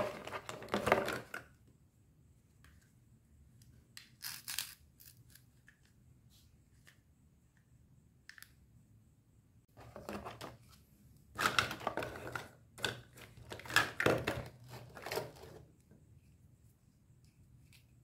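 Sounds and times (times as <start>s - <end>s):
plastic toy pieces clattering: 4.1s - 5.4s.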